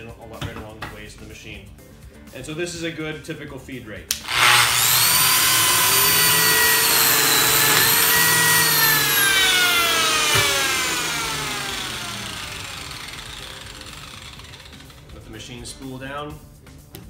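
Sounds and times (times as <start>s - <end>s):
joiner motor whining: 4.1s - 15.2s.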